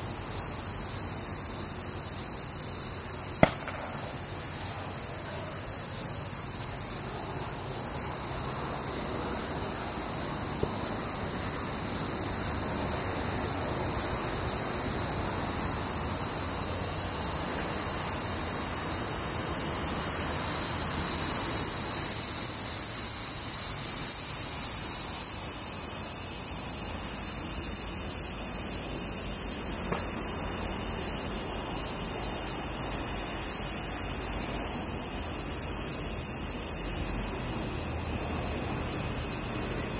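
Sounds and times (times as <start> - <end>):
cicadas shrilling: 0.0 - 39.9.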